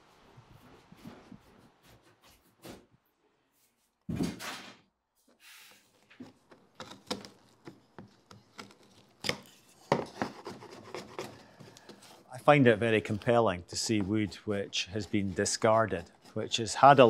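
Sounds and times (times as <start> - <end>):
chisel scraping wood: 6.2 - 17.0.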